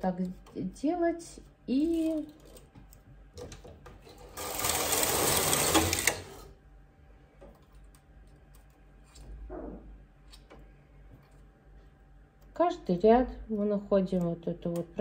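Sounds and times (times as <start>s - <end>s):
knitting machine carriage clatter: 3.5s - 6.5s.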